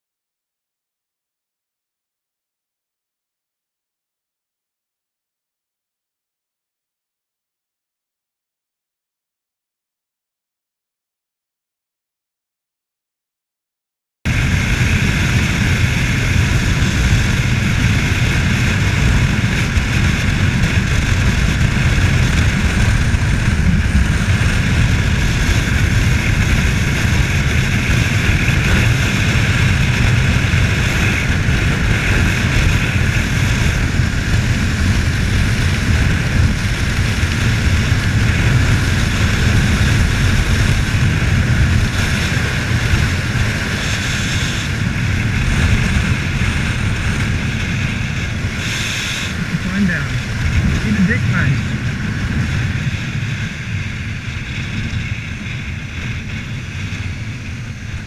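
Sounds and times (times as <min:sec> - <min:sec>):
motorcycle engine running: 0:14.3 - 0:58.0
wind roaring over microphone: 0:14.3 - 0:58.0.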